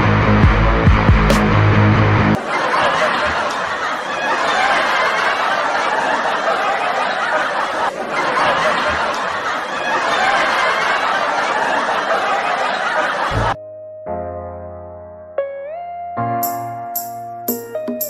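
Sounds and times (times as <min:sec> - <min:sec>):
people laughing: 0:02.3 - 0:13.6.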